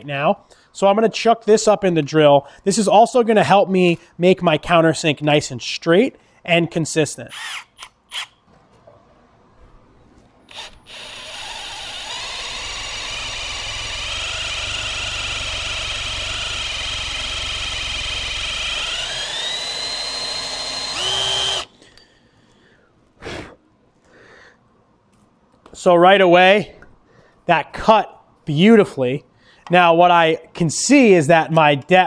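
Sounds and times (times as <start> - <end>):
power drill cutting steel: 10.5 - 21.7.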